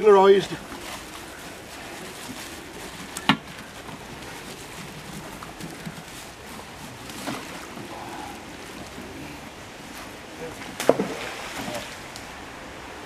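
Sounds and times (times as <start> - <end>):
plastic bag rustling: 0.0 - 9.3.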